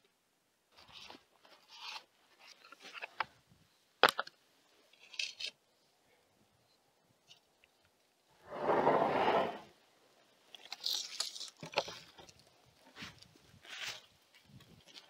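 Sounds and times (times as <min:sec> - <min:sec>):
wood rubbing and scraping: 0:08.5 - 0:09.7.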